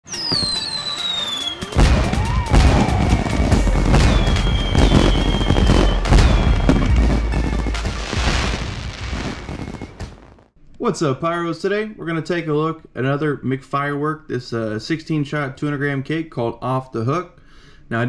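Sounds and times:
whistling fireworks gliding in pitch: 0:00.0 - 0:10.5
music: 0:00.1 - 0:10.3
firework bangs and crackles: 0:00.1 - 0:10.5.

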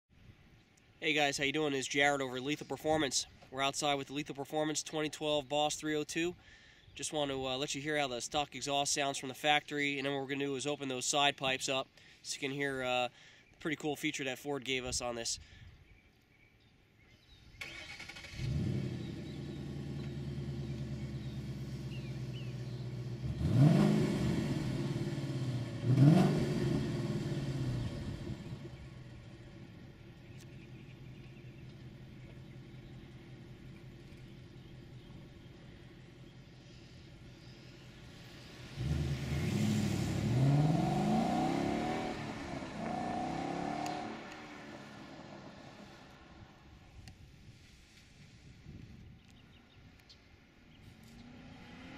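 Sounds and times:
car engine starting and idling: 0:17.5 - 0:46.8
engine revving: 0:17.6 - 0:29.8, 0:37.2 - 0:46.3, 0:51.0 - 0:51.9.

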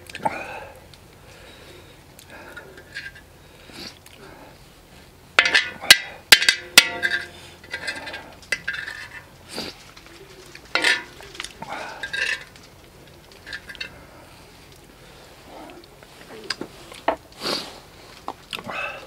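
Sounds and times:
spoon scraping griddle plate: 0:05.4 - 0:09.3, 0:10.7 - 0:11.3.

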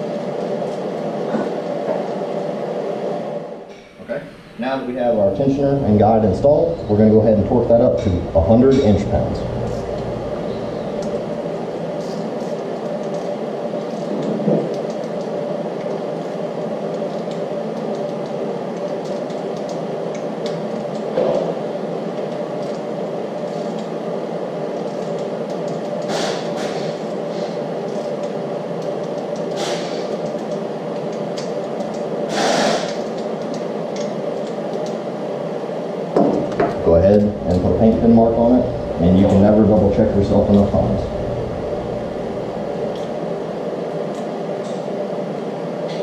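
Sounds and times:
machine hum: 0:00.0 - 0:46.0.

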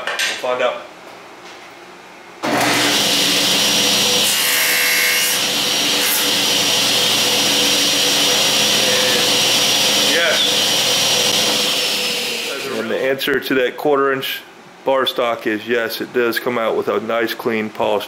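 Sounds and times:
table saw running: 0:02.4 - 0:12.9
saw blade cutting aluminum: 0:04.2 - 0:06.3.

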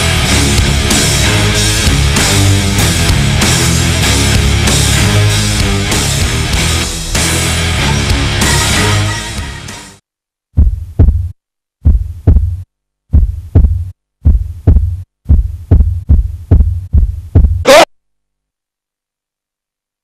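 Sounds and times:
music: 0:00.0 - 0:10.0
heartbeat thumps: 0:10.5 - 0:17.7.

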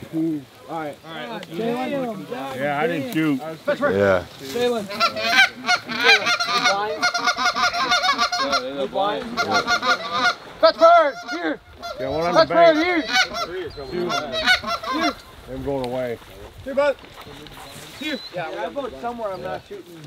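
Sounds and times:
goose honks and clucks: 0:04.9 - 0:15.3.

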